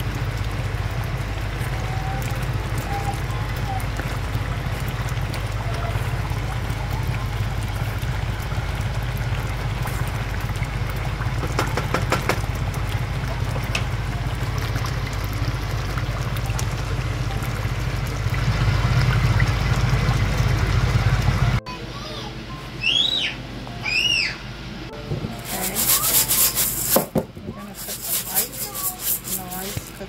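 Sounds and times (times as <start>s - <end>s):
low steady hum: 0.0s - 11.5s, 12.4s - 30.0s
sauce bubbling and spitting in pot: 0.0s - 20.3s
crackles: 0.0s - 21.4s.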